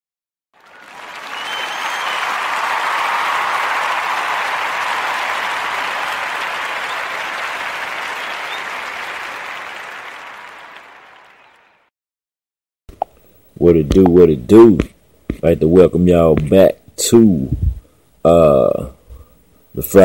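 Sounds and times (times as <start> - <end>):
crowd applause: 0.6 - 11.9.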